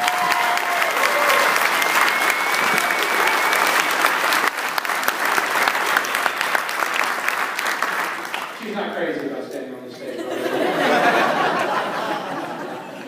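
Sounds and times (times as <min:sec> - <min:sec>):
crowd applauding: 0:00.0 - 0:09.3.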